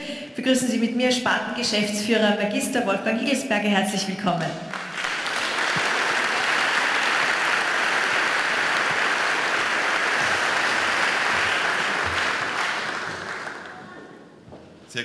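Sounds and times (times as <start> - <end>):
audience applauding: 4.7 - 14.3.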